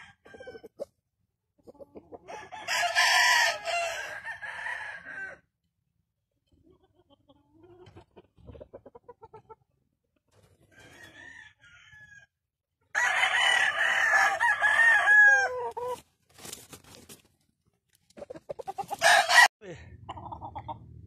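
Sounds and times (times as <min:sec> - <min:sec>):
rooster crowing: 0:00.0 - 0:00.6, 0:02.3 - 0:05.4, 0:10.8 - 0:12.3, 0:12.9 - 0:15.9, 0:18.9 - 0:19.5.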